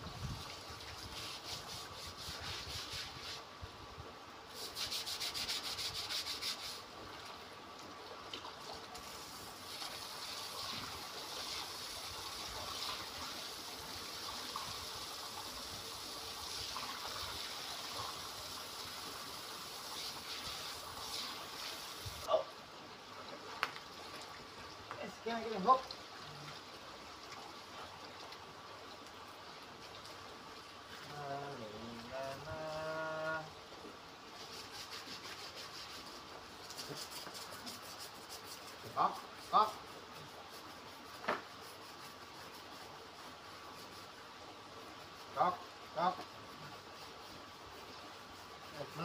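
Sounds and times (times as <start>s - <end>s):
hose spraying water on concrete: 0.0s - 3.5s, 4.5s - 7.0s, 8.3s - 22.3s, 24.9s - 26.6s, 30.9s - 33.5s, 34.2s - 49.0s
brush scrubbing wet concrete: 0.3s - 3.5s, 4.5s - 6.9s, 9.0s - 22.3s, 34.4s - 49.0s.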